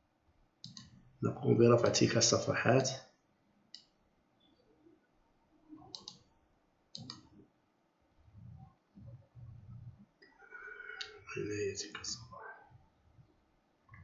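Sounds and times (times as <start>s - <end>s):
computer mouse clicking: 0.6s - 1.0s, 3.7s - 3.9s, 5.8s - 6.3s, 6.9s - 7.4s
faint low thumps: 8.2s - 10.2s.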